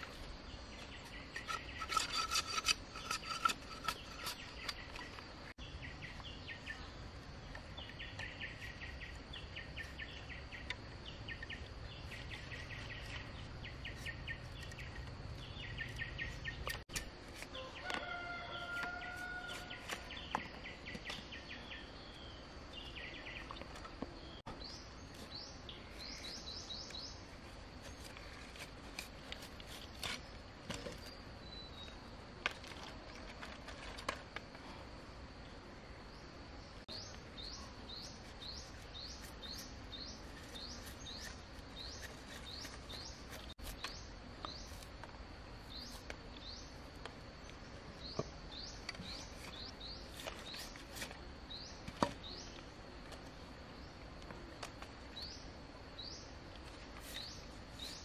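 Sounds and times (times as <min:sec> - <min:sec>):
machete scraping bamboo: 0:00.0 - 0:05.3, 0:12.0 - 0:20.4, 0:26.0 - 0:31.2, 0:37.9 - 0:45.0, 0:48.9 - 0:52.2, 0:56.7 - 0:58.0.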